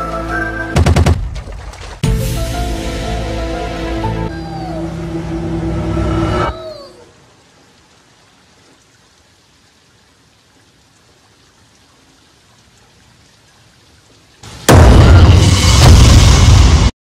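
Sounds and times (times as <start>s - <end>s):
falling musical tones: 2.0s - 6.9s
rain on a wet street: 6.9s - 14.7s.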